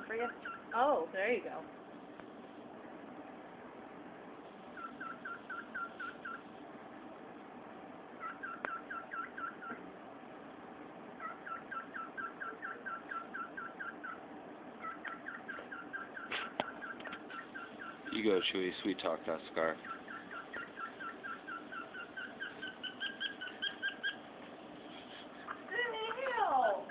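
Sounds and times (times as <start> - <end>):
cockatiel chirping: 0.1 - 0.8, 4.7 - 6.5, 8.2 - 9.8, 11.2 - 24.3.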